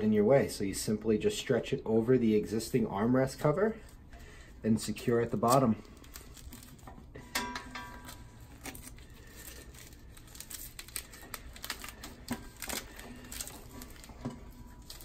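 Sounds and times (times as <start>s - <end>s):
velcro straps pulled: 8.0s - 15.0s.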